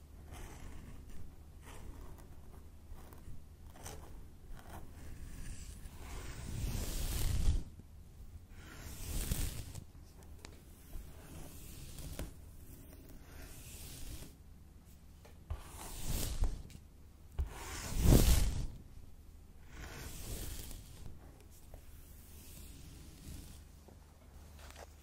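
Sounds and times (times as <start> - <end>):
comb scratching through hair: 4.6 - 7.7, 8.6 - 9.9, 10.6 - 14.4, 15.5 - 16.8, 17.4 - 18.8, 19.6 - 23.7.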